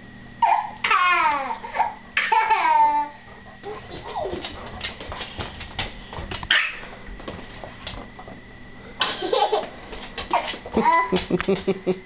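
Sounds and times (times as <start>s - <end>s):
toddler laughing: 0.4s - 4.5s, 9.1s - 9.7s, 10.3s - 11.8s
dog claws clicking on floor: 3.6s - 8.1s, 9.9s - 11.8s.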